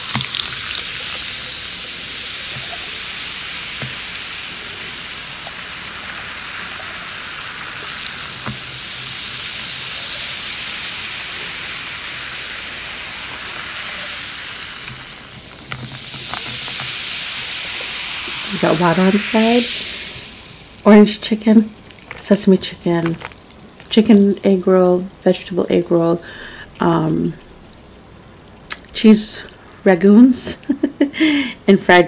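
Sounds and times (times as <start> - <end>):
soda fizzing over ice: 0.0 - 32.0
ice clicking: 14.5 - 17.0, 21.8 - 24.2.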